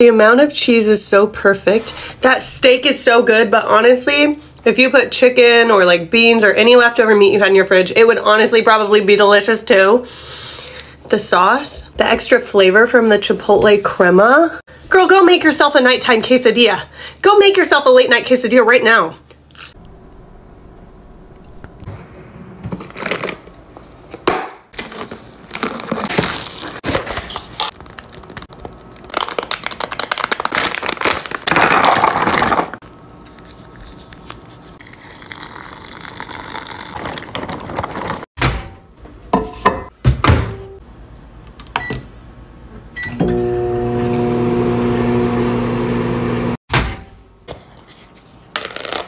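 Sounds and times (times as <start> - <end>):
microwave humming: 19.8 - 23.6, 43.0 - 46.6
plastic packaging crinkling: 22.8 - 23.6, 24.8 - 38.3.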